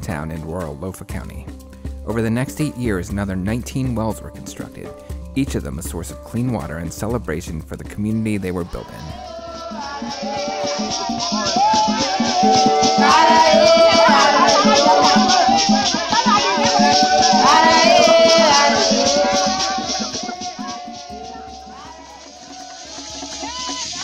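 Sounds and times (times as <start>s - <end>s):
group of people singing: 8.6s - 24.0s
shaker rattle: 9.0s - 24.0s
hands clapping: 10.2s - 24.0s.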